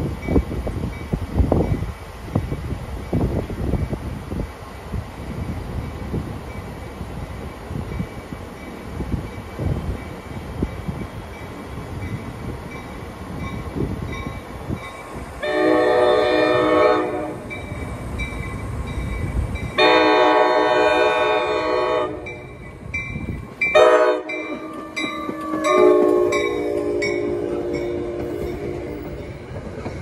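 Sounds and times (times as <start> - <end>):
train approaching with rumble: 0.0 - 30.0
train horn blasts: 15.4 - 17.6, 19.8 - 22.6, 23.7 - 29.2.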